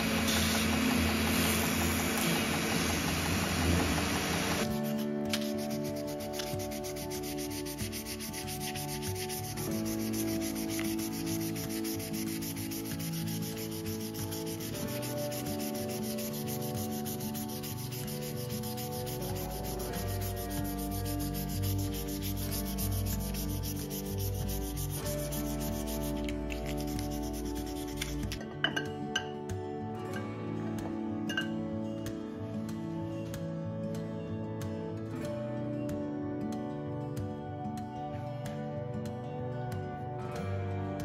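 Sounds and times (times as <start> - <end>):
background music: 0.0 - 41.0
sanding pad rubbing knife blade: 4.1 - 28.4.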